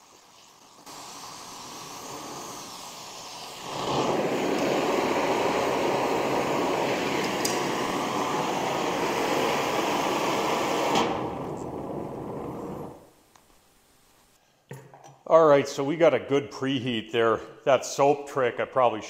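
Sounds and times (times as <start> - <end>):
torch flame hissing: 0.0 - 13.2.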